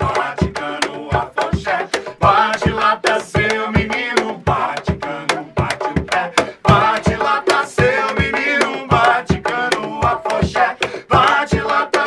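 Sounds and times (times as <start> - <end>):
hand percussion beat: 0.0 - 12.0
man singing: 0.0 - 12.0
flute: 4.4 - 6.8.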